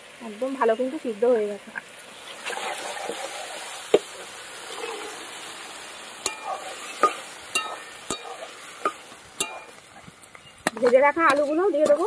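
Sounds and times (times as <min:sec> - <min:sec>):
food sizzling in a pan: 0:00.0 - 0:12.0
metal spatula clinking against pan: 0:06.2 - 0:09.8.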